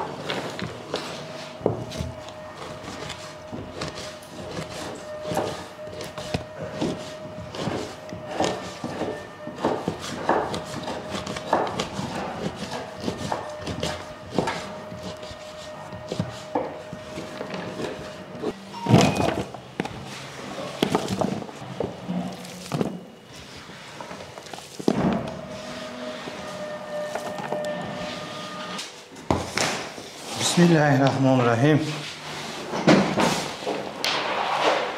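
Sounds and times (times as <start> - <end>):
knife chopping on wooden board: 3.8 - 16.7.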